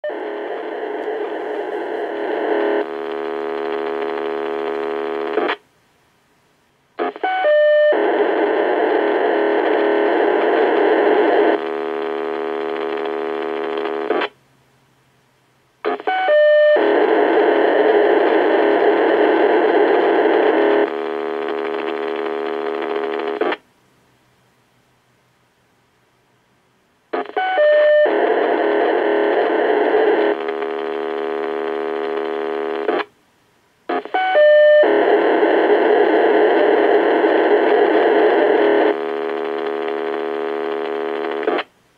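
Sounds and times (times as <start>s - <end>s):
pager data tones through speaker: 34.0s - 34.9s.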